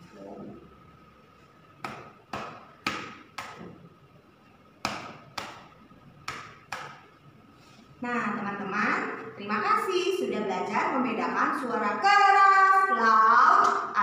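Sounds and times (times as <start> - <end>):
stick tapping on a book: 4.8 - 7.1.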